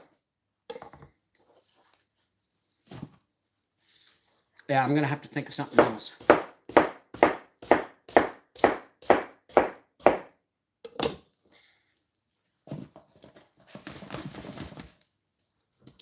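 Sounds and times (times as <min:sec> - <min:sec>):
soft scraping and shuffling: 0:01.3 - 0:04.6, 0:11.4 - 0:16.0
knife chopping on cutting board: 0:05.7 - 0:10.3.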